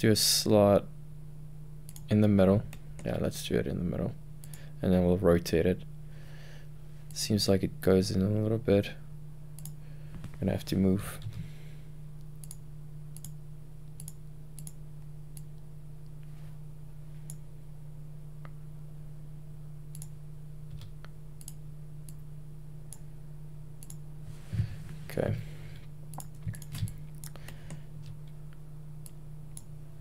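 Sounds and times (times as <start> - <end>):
low electrical hum: 0.0 - 30.0
computer mouse clicks: 12.4 - 12.6, 13.2 - 14.8, 19.9 - 20.1, 20.7 - 22.2, 23.8 - 24.0, 26.1 - 28.2.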